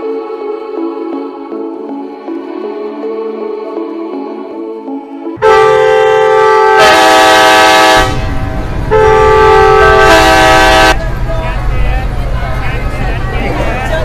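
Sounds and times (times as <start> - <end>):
passing train rumble: 0.0 - 14.0
train horn blasts: 5.4 - 11.0.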